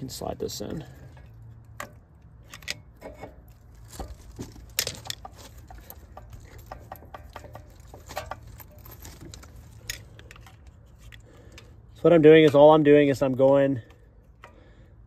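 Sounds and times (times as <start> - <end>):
metal brake pad clicking and scraping: 1.0 - 12.7.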